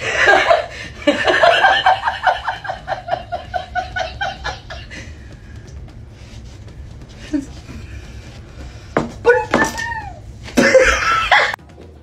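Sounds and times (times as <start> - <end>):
woman laughing hard: 0.0 - 5.2, 10.6 - 11.6.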